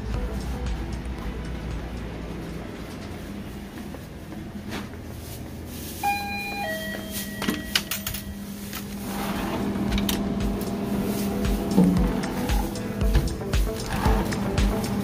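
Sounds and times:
steady low hum: 0.0 - 7.1, 8.0 - 15.0
two-note electronic chime: 6.0 - 8.6.

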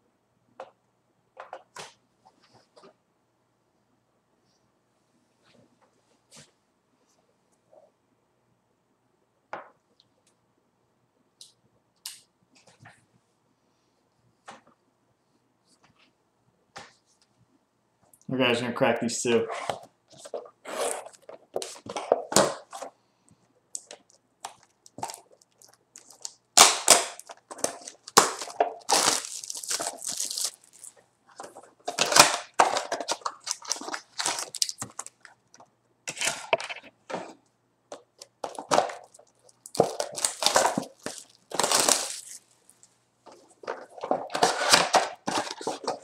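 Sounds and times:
foil packs crinkling: 23.8 - 31.0, 31.8 - 35.4, 38.4 - 42.8.

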